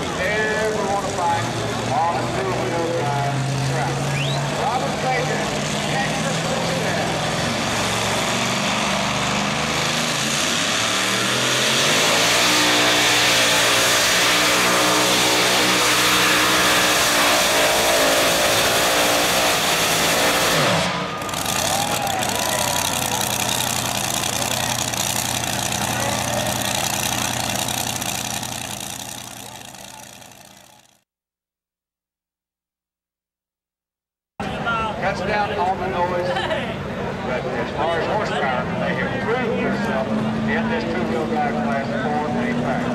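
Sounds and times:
truck engine revving at full throttle: 0:00.0 - 0:31.0.

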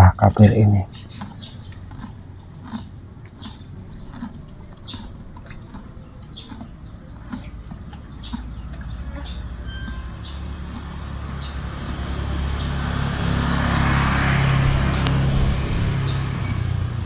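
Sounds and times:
horse munching feed: 0:00.6 - 0:12.1
low steady rumble: 0:14.4 - 0:17.0.

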